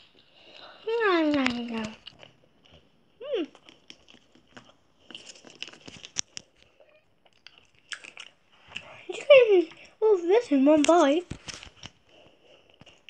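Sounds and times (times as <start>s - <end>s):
foil crinkling and clicks: 3.7s - 6.7s, 10.8s - 12.0s.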